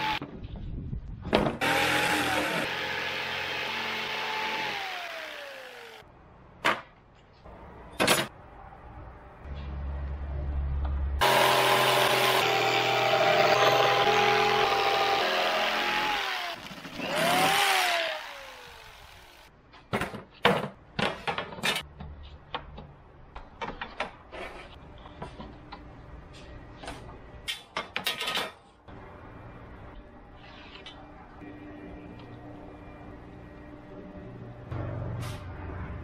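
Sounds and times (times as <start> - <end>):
electric jigsaw cutting: 1.6 - 6.0, 11.2 - 19.5.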